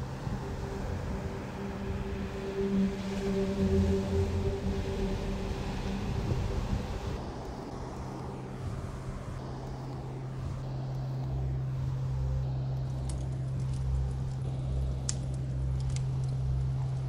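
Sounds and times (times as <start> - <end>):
low rumbling drone with hum: 0.0 - 17.0
faint clicks: 12.8 - 17.0.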